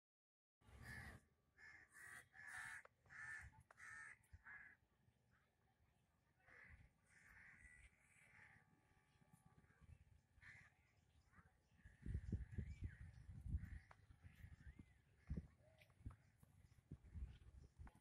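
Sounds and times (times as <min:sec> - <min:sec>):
crows cawing: 0:00.8 - 0:04.8, 0:06.4 - 0:08.8, 0:10.4 - 0:10.9.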